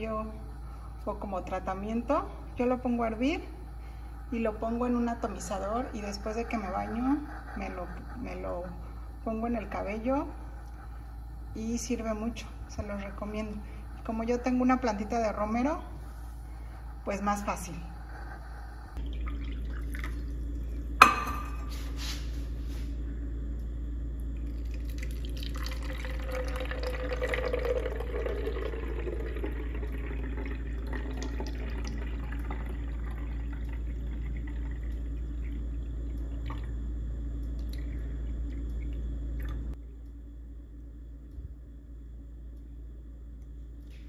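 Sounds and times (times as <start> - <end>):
liquid trickling into bottle: 24.4 - 35.6.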